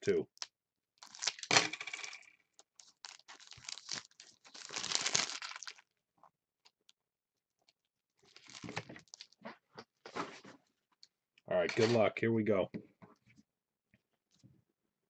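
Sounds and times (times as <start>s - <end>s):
foil wrapper tearing and crinkling: 1.0s - 1.5s, 2.8s - 5.9s, 8.3s - 9.4s.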